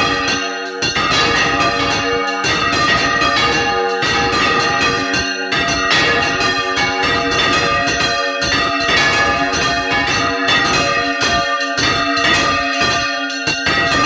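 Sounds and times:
church bells pealing: 0.0s - 14.0s.

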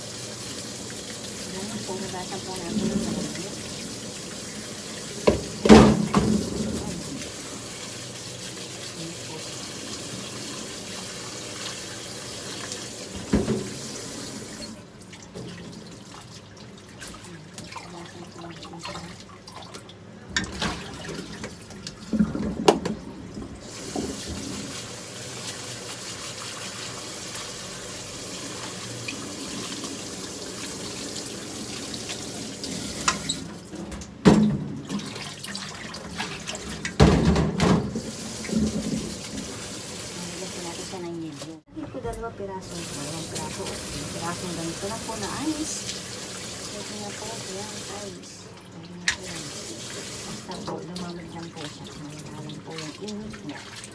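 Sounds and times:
dishes knocking against sink: 5.2s - 7.0s, 13.2s - 13.8s, 22.2s - 23.1s, 36.9s - 39.0s
tap running into metal sink: 5.2s - 7.4s, 13.0s - 15.8s, 20.3s - 24.8s, 32.0s - 35.1s, 36.6s - 39.7s.

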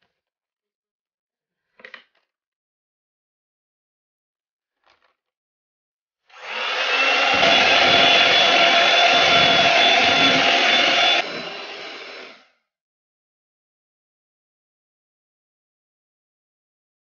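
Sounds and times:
electric hand mixer whirring: 6.3s - 12.5s.

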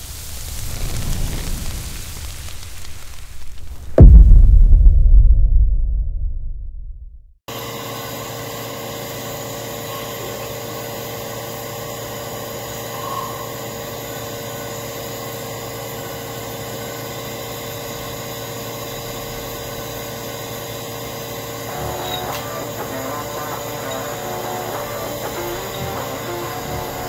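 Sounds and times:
machinery hum and hiss: 7.5s - 27.0s.

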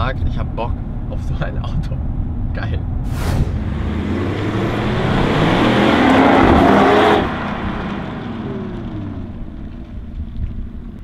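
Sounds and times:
cars accelerating: 3.2s - 10.1s.

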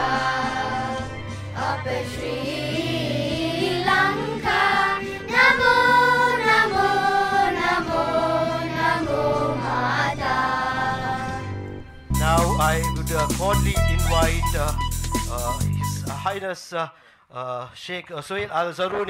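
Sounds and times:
children's choir singing: 0.0s - 11.6s
low accompaniment: 0.0s - 16.4s.

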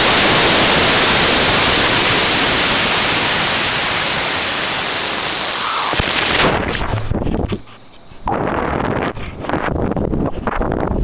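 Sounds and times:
airflow rushing over microphone: 0.0s - 11.0s.

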